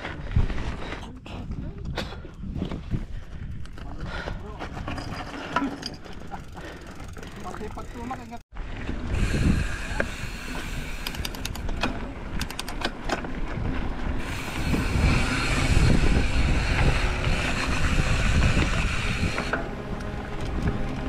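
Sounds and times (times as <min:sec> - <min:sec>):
wind buffeting microphone: 0:00.2 - 0:07.2, 0:08.8 - 0:12.6, 0:13.2 - 0:21.0
bicycle tyre rumble: 0:02.5 - 0:21.0
sharp clicks and rattles: 0:11.0 - 0:13.3.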